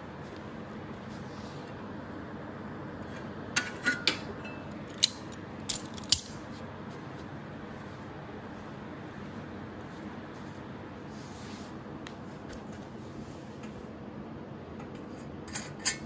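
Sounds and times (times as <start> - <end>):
metal clamp clicks and clanks: 4.9 - 6.4.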